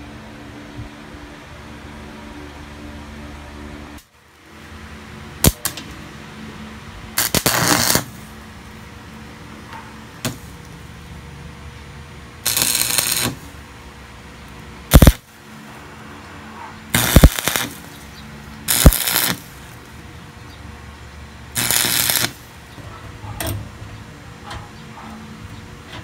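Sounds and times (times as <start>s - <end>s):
welding arc crackling: 5.4s - 6.0s, 7.1s - 9.3s, 10.0s - 11.0s, 12.3s - 15.9s, 16.9s - 20.3s, 21.5s - 22.9s
sharp metallic clicks: 14.9s - 15.2s, 17.0s - 17.8s.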